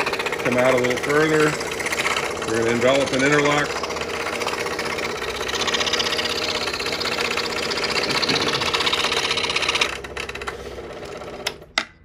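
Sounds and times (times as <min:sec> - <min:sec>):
scroll saw buzzing: 0:00.0 - 0:11.7.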